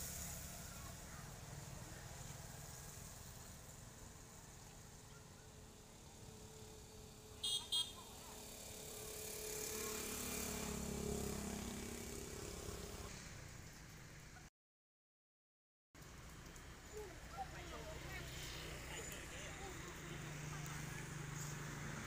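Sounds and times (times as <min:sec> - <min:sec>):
vehicle passing: 0:06.4 - 0:13.2, 0:17.4 - 0:22.0.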